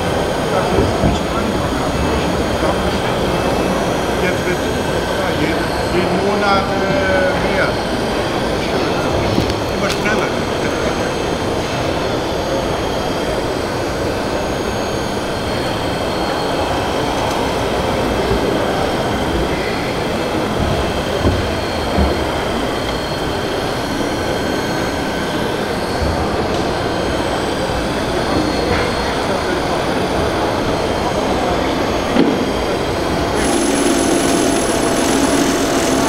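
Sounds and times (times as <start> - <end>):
faint high whines: 33.3 - 36.0
dense mechanical din: 33.4 - 36.0.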